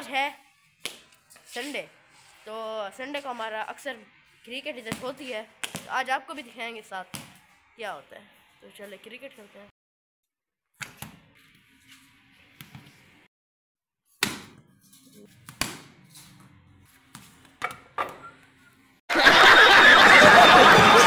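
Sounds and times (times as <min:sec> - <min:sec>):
ball hitting tiled floor: 0:04.9 - 0:05.9, 0:07.1 - 0:07.5, 0:10.8 - 0:11.5, 0:12.5 - 0:13.0, 0:14.1 - 0:18.6
audience laughing and shouting: 0:19.1 - 0:21.0.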